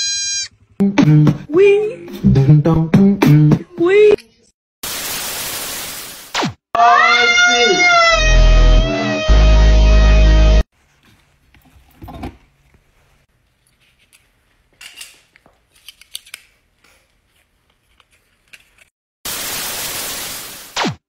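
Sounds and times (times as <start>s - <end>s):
loud hiss burst: 4.8s - 6.4s, 19.3s - 20.9s
hand tools clicking and snipping: 13.7s - 18.9s.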